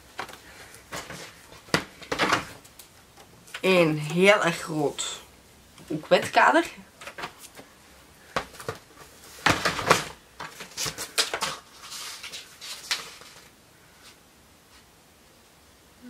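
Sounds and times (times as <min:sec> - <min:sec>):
household items clattering: 0:00.9 - 0:02.6, 0:08.4 - 0:11.7
packaging rustling: 0:08.4 - 0:13.5.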